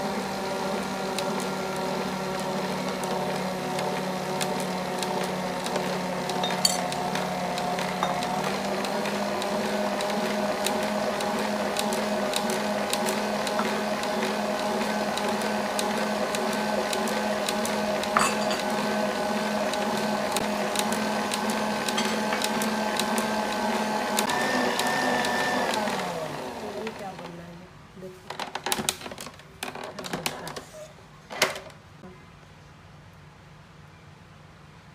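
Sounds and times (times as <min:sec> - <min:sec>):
stand mixer motor whine: 0:00.0 - 0:27.2.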